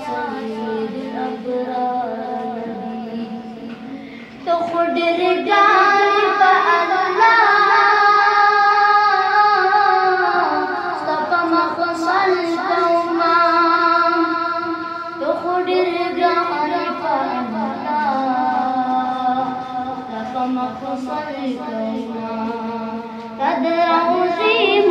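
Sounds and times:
boy singing unaccompanied: 0.0s - 24.9s.

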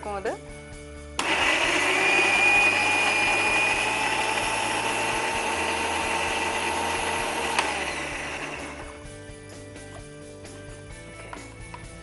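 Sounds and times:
blender motor grinding: 1.2s - 9.2s.

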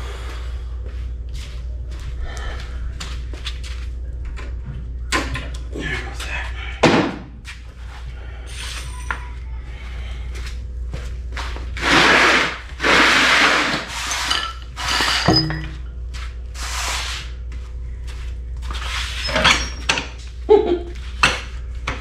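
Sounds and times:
low hum: 0.0s - 22.0s
loud scraping: 11.8s - 15.3s.

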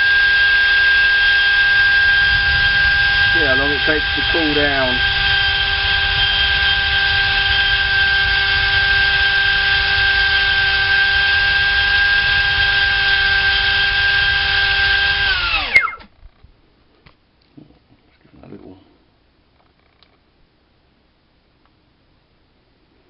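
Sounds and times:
electric ducted fan whining: 0.0s - 17.6s.

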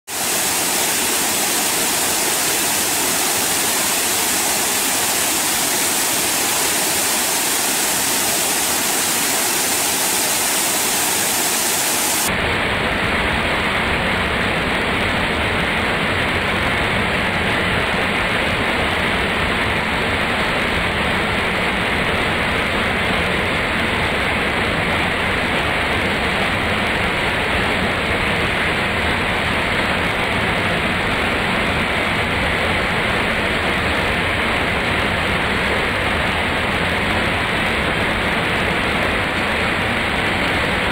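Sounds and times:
waterfall splashing onto rocks: 0.1s - 12.3s.

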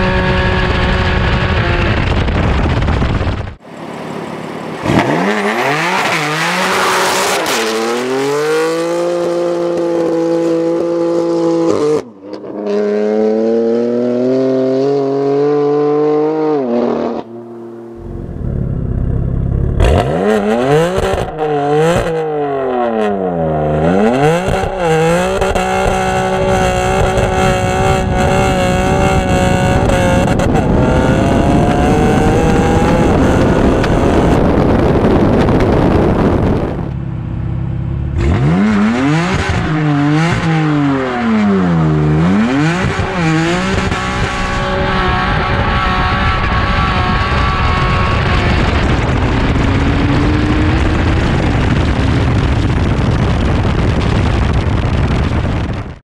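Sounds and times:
wind rush: 0.0s - 10.2s, 24.0s - 56.0s
car engine revving: 3.6s - 55.7s.

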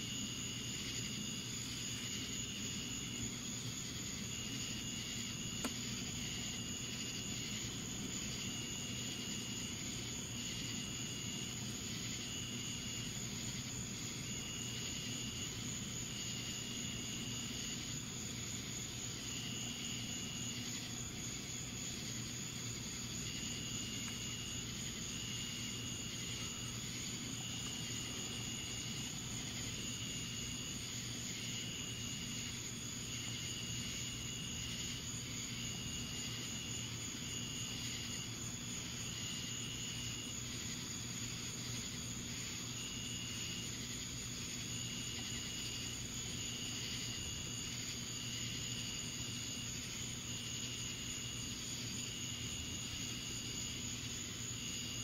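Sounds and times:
night insects trilling: 0.0s - 55.0s.

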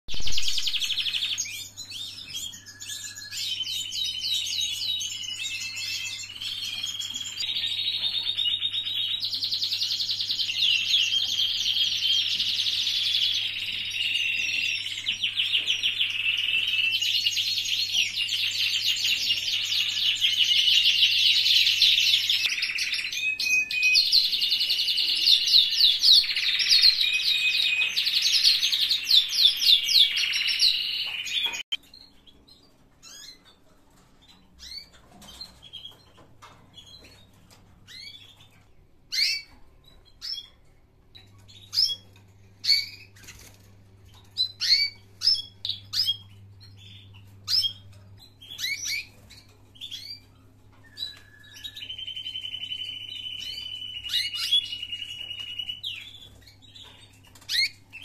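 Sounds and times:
canaries singing trills: 0.1s - 58.0s.

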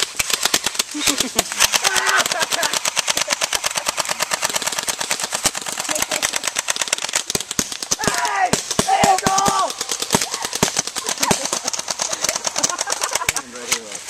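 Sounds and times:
rapid automatic gunfire: 0.0s - 13.4s
person speaking: 8.0s - 14.0s.

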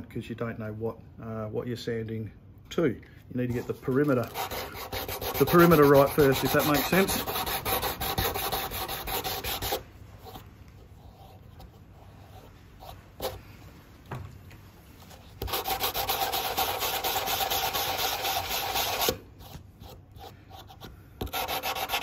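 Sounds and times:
sandpaper scrubbing on fin edge: 3.9s - 9.8s, 15.4s - 19.2s, 20.7s - 22.0s.

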